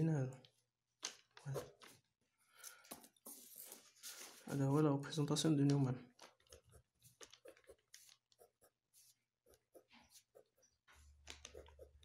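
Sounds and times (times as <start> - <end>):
ballpoint pen scratching on paper: 6.3 - 12.0.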